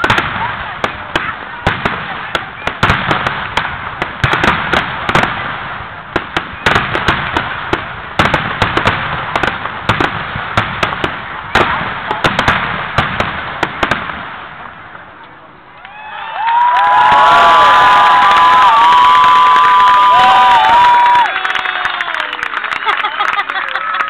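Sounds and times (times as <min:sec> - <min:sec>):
fireworks bangs: 0:00.0 - 0:15.5
fireworks crackling: 0:00.0 - 0:15.8, 0:16.5 - 0:24.0.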